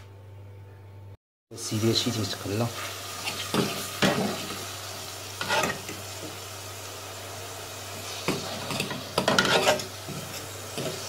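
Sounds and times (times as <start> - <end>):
chicken sizzling in a pot: 1.5 - 11.0
fork scraping a metal pot: 5.4 - 5.8, 8.3 - 11.0.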